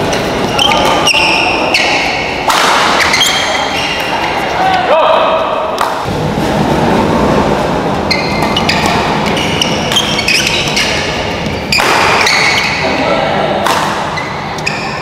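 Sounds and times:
sneakers squeaking on court: 0:00.0 - 0:04.3, 0:08.0 - 0:12.9, 0:14.1 - 0:15.0
racket hitting shuttlecock: 0:00.1 - 0:04.1, 0:08.2 - 0:12.8, 0:13.6 - 0:15.0
spectator chatter: 0:03.4 - 0:09.3, 0:12.8 - 0:14.6.

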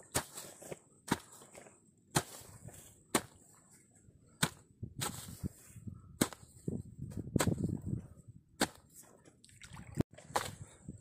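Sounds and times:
hoe chopping into soil: 0:00.0 - 0:03.4, 0:04.4 - 0:05.4, 0:06.2 - 0:06.5, 0:07.2 - 0:07.7, 0:08.6 - 0:08.9
earth and grass rustling: 0:00.0 - 0:11.0.

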